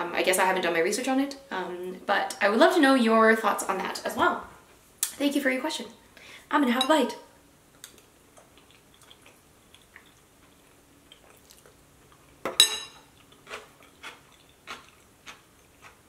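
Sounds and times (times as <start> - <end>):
chewing mouth sounds: 7.8 - 12.4, 13.1 - 16.0
metal spoon clinking on ceramic bowl: 12.5 - 13.0.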